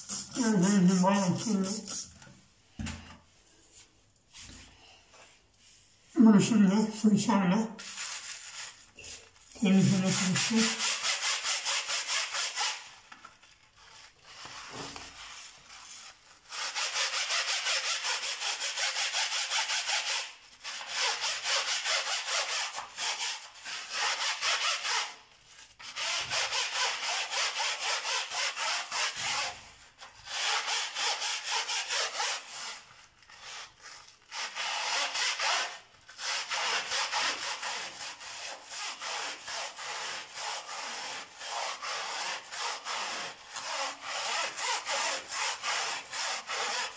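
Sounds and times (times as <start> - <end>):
brush scrubbing metal mesh: 0.0 - 2.2, 7.8 - 12.8.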